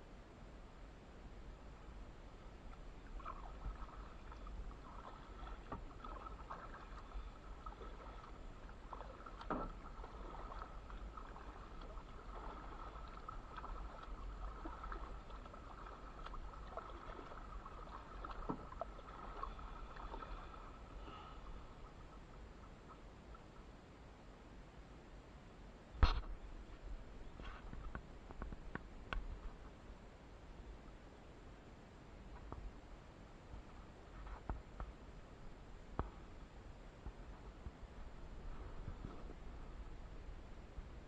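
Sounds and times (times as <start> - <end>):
kayak paddle strokes in water: 2.5 - 23.0
water dripping off paddle: 2.7 - 20.9.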